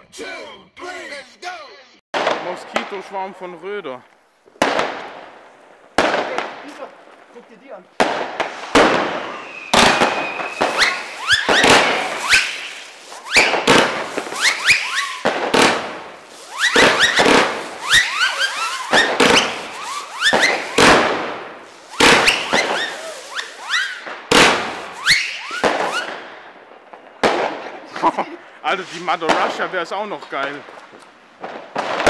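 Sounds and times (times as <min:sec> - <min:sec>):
firework launch bangs: 0:02.2 - 0:03.8, 0:04.4 - 0:28.1, 0:28.7 - 0:32.0.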